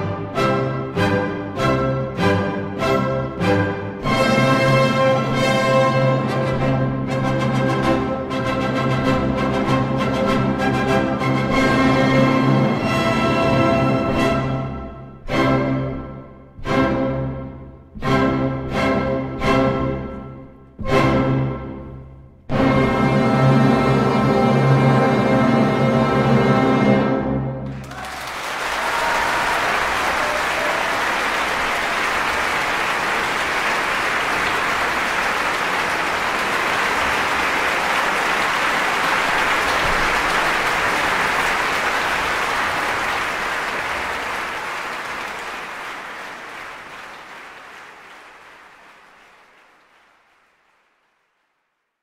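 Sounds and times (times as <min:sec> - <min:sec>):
audience applauding: 0:27.6 - 0:51.7.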